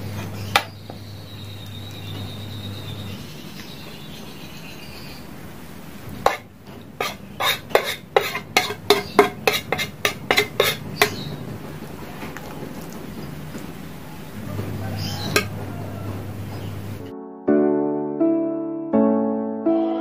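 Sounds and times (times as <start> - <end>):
spoon scraping ceramic plate: 6.2 - 11.3, 15.2 - 15.5
spoon clinking on plate: 7.0 - 11.2.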